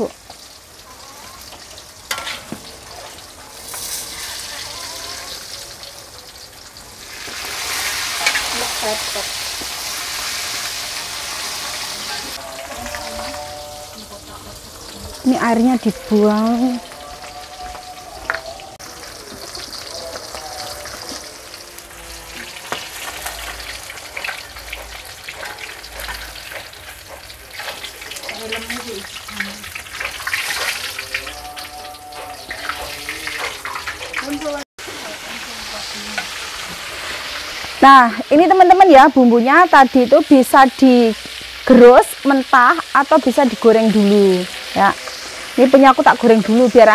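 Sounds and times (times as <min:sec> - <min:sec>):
spatula working in wok: 0:00.0 - 0:38.5, 0:40.8 - 0:46.9
fish sizzling in hot oil: 0:00.0 - 0:46.9
metal ladle scraping a pan: 0:01.4 - 0:05.8, 0:07.1 - 0:15.2, 0:19.4 - 0:37.8, 0:43.3 - 0:46.9.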